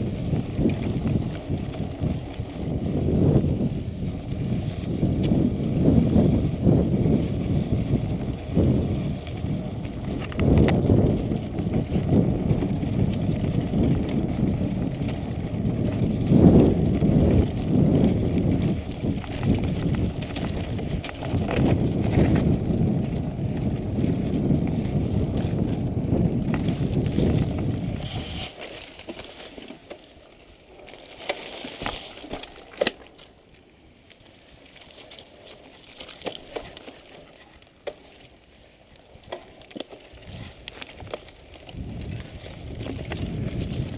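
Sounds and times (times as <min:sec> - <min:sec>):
wind buffeting microphone: 0:00.0 - 0:28.6, 0:40.1 - 0:43.9
bike rattling and knocking: 0:00.0 - 0:30.1, 0:39.2 - 0:43.9
bike tyres crackling on trail: 0:00.0 - 0:43.9.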